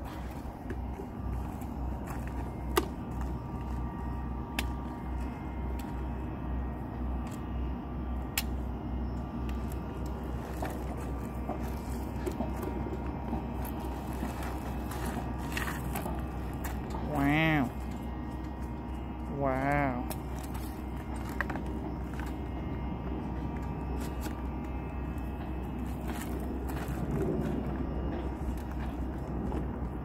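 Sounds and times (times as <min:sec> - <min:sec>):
steady low rumble: 0:00.0 - 0:30.0.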